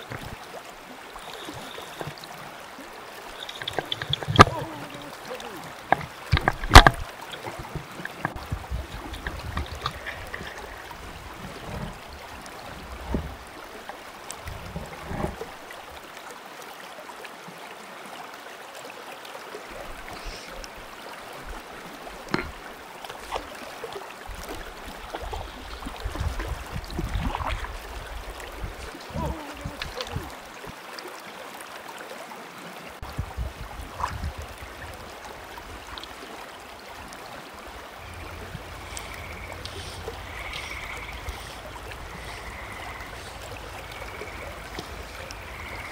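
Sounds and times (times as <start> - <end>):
flowing water rippling: 0.0 - 45.9
light splashes and knocks: 3.3 - 12.1, 12.7 - 13.4, 22.2 - 27.9.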